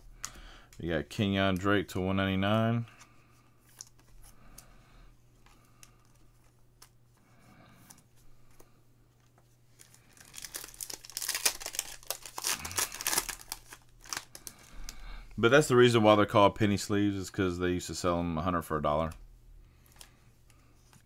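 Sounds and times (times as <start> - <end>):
foil wrapper rustling and tearing: 9.8 - 15.0.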